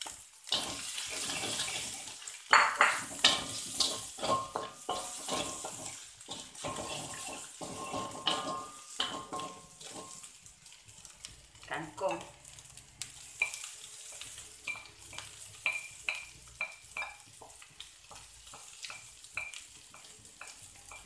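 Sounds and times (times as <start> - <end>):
spatula scraping a metal wok: 0.4 - 11.2, 12.7 - 21.0
wok ringing faintly: 13.3 - 17.4.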